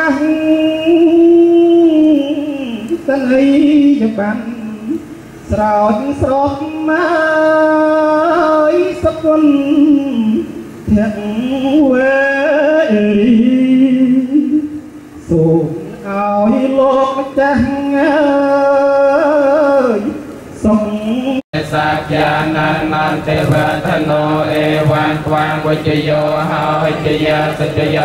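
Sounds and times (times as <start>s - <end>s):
person singing a slow chant: 0.0s - 28.0s.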